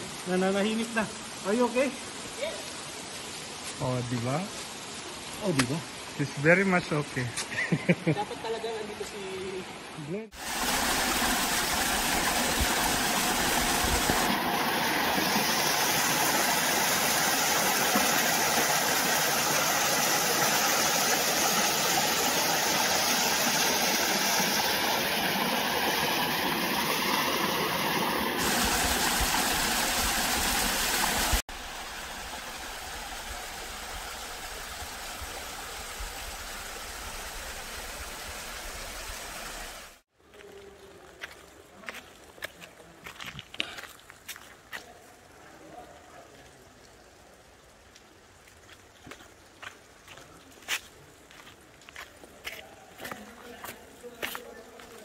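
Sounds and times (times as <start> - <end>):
rush of falling water: 0.0 - 55.0.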